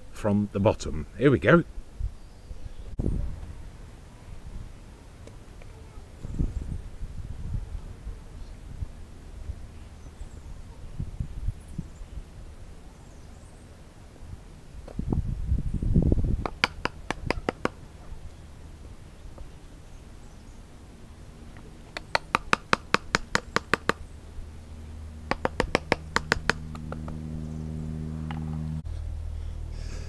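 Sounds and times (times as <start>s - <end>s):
hammer tapping wood: 16.4s - 17.8s, 21.9s - 24.0s, 25.3s - 27.2s.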